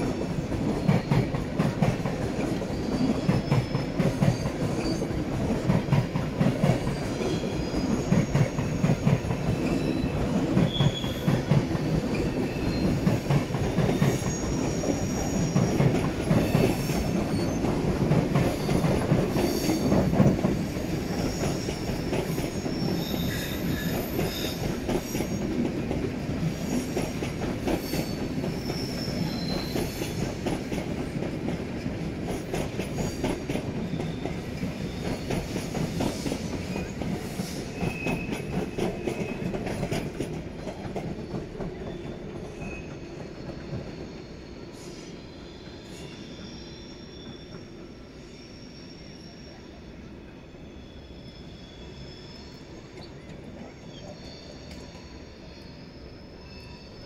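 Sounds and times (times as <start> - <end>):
train wheels clattering: 0.0 - 44.3
high wheel squeals: 13.9 - 17.7, 18.5 - 25.5, 27.8 - 30.3, 41.8 - 57.0.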